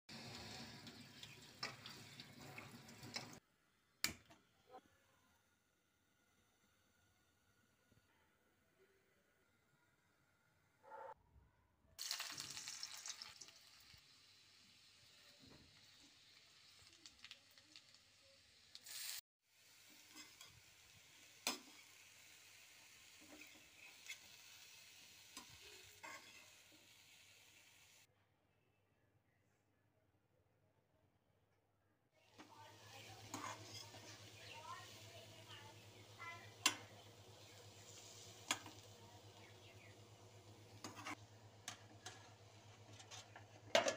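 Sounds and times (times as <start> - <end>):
faint sizzling of oil: 0.1 - 3.4, 12.0 - 28.1, 32.2 - 43.9
metal spatula scraping a pan: 25.4 - 26.6, 32.9 - 35.0, 40.6 - 43.9.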